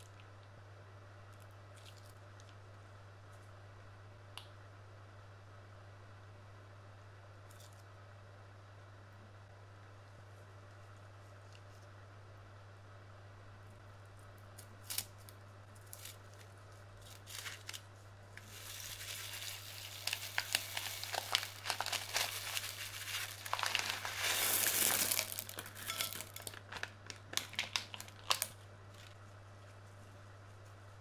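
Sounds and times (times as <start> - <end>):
plastic piping bag crinkling: 15.8 - 29.2
beads pouring onto slime: 18.5 - 26.5.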